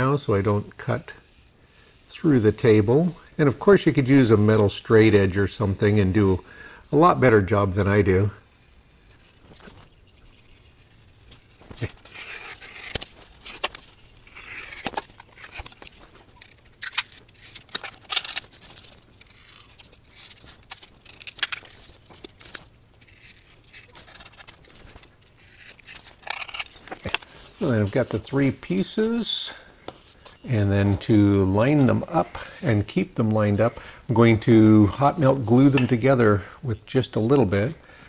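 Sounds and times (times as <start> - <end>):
sharp clicks and crackles: 9.2 - 27.3
knife cutting foam board: 10.4 - 21.7, 22.3 - 27.2.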